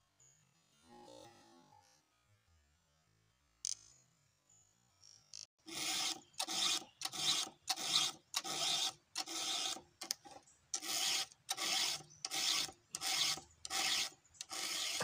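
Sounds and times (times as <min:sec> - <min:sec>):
file rasping on chainsaw chain: 0:05.6 - 0:15.0.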